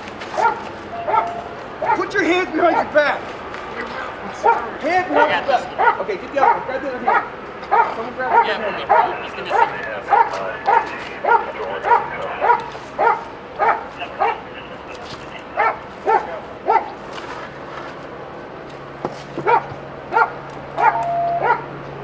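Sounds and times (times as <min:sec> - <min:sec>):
dog barking: 0:00.4 - 0:02.1, 0:04.4 - 0:14.4, 0:15.6 - 0:17.0, 0:19.4 - 0:21.7.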